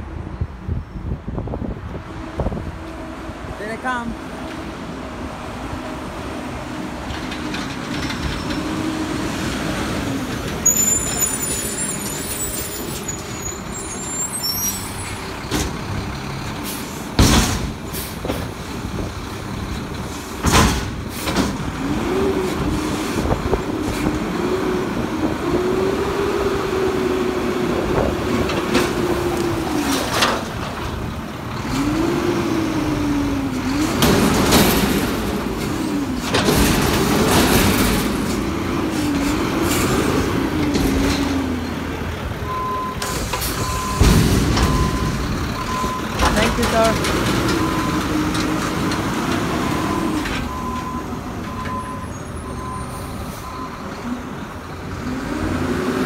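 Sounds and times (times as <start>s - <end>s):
garbage truck diesel engine: 0.0s - 56.0s.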